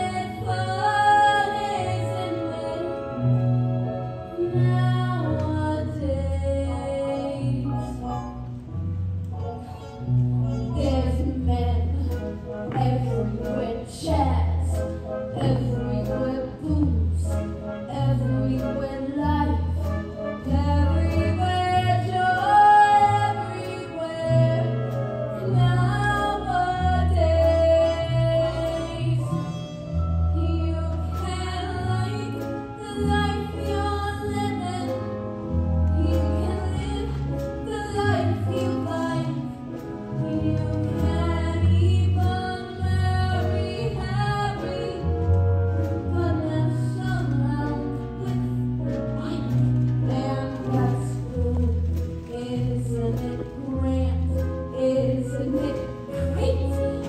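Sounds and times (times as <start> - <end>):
woman singing: 0.0 - 8.2, 10.5 - 57.0
band accompaniment: 0.0 - 57.0
bass line: 0.0 - 57.0.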